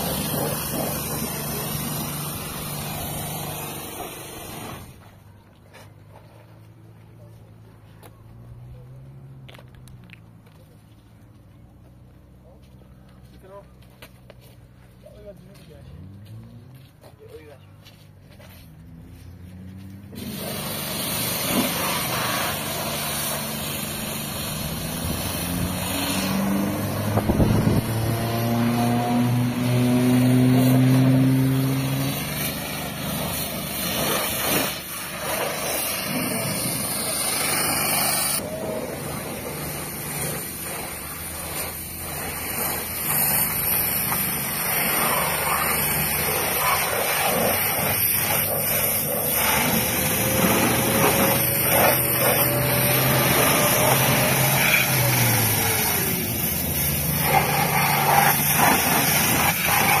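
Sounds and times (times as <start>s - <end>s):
pressure washer motor hum: 0.0s - 5.0s, 20.1s - 60.0s
water jet hissing: 0.0s - 5.0s, 20.1s - 28.6s, 30.2s - 60.0s.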